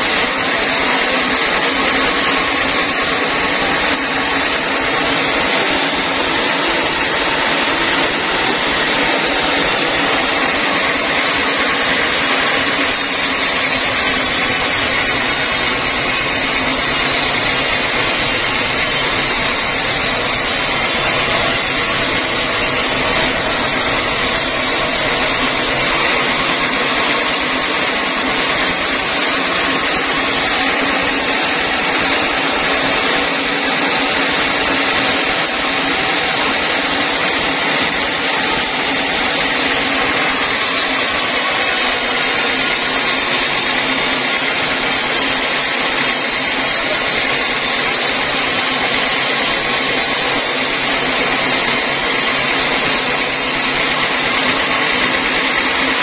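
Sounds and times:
band saw cutting timber: 0.0s - 28.4s, 37.8s - 54.0s.

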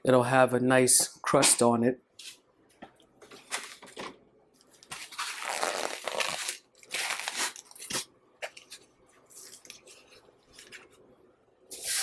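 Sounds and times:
crinkling and rustling by hands: 2.2s - 11.1s.

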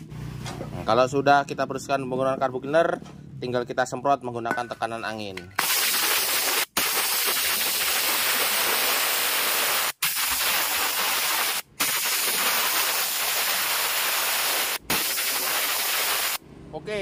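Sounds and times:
compressed air blow gun hissing: 5.6s - 16.4s.

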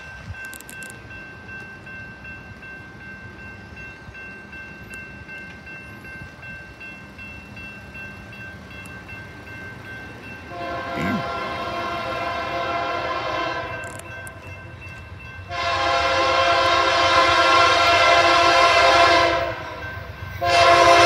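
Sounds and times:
crossing warning bell ringing: 0.0s - 21.0s
locomotive air horn chord: 10.5s - 13.8s, 15.5s - 19.8s, 20.4s - 21.0s.

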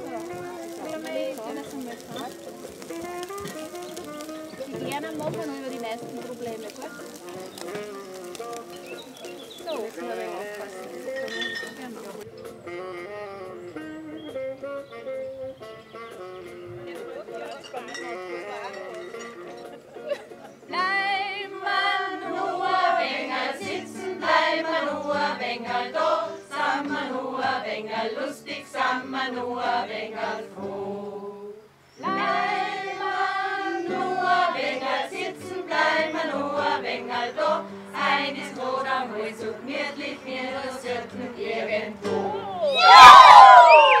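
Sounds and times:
women's choir singing: 20.7s - 42.6s.

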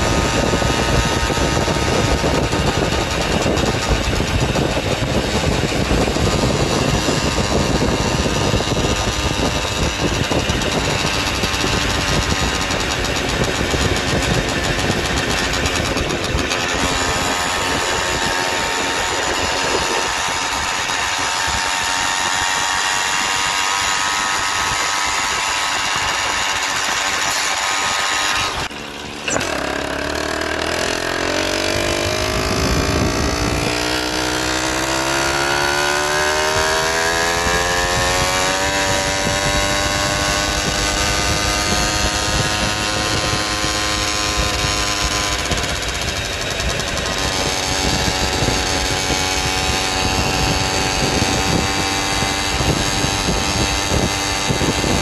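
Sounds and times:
small motorbike engine accelerating: 0.0s - 55.0s.

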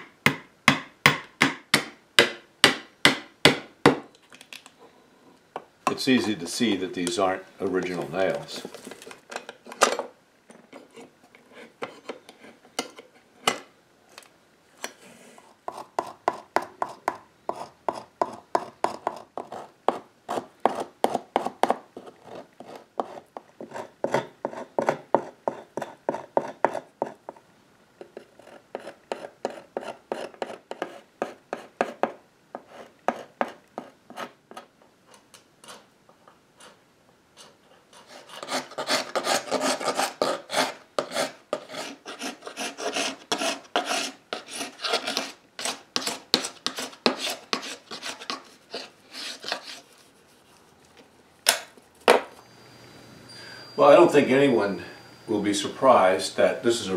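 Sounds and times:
hand scraper scraping wood: 14.9s - 27.2s, 28.0s - 34.6s, 37.4s - 50.6s.

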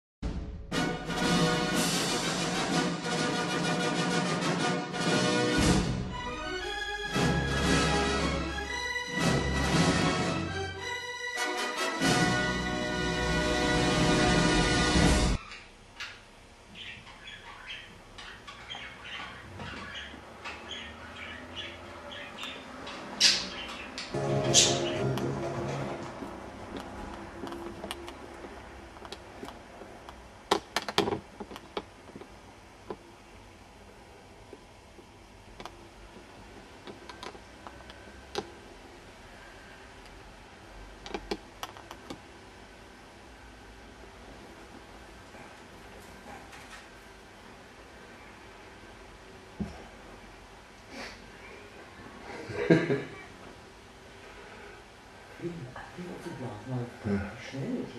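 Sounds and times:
budgerigars chirping: 16.7s - 25.1s.

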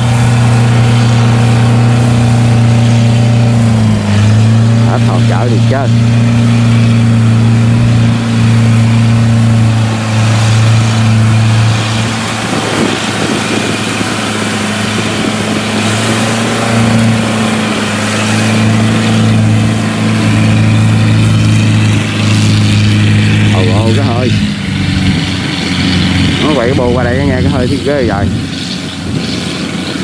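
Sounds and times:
tracked carrier engine droning: 0.0s - 30.0s.

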